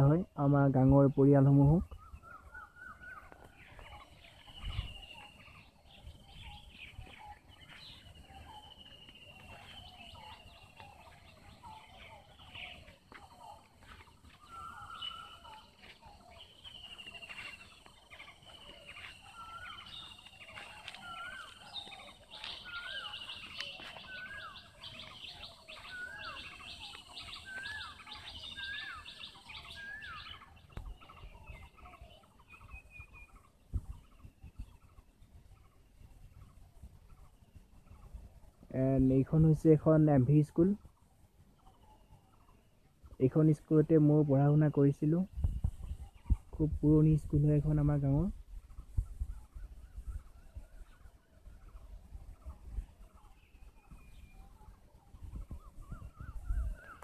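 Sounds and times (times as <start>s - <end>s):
birds calling and chirping: 0.0s - 57.0s.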